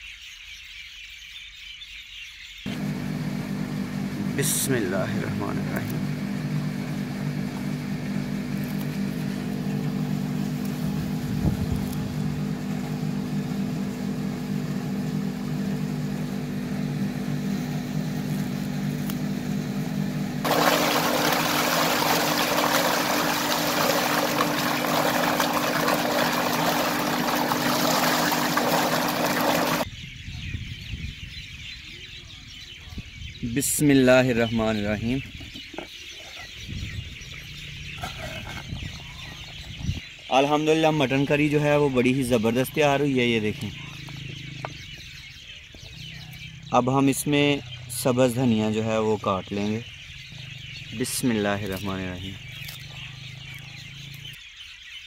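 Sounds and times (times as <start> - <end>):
engine humming: 2.7 - 29.9, 40.8 - 54.7.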